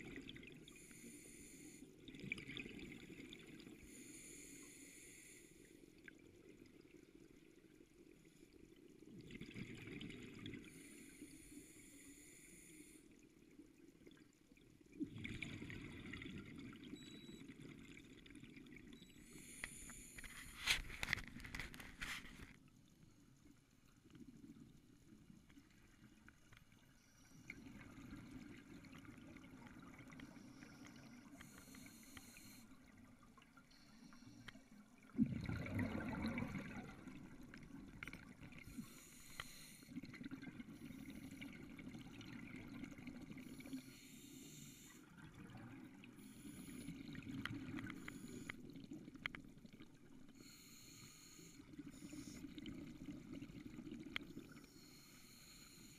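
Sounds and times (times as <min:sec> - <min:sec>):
bubbling exhalations: 0:35.2 - 0:37.2
regulator inhalation hisses: 0:38.7 - 0:39.9, 0:50.4 - 0:52.4.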